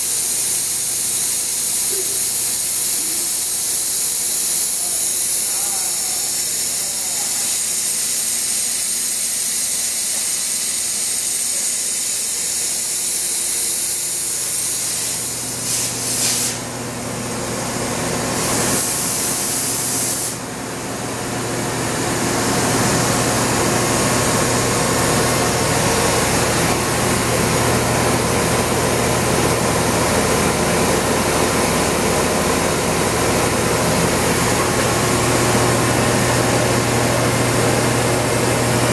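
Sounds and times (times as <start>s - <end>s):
compressed air hissing bursts: 0.0s - 16.6s, 18.4s - 20.4s.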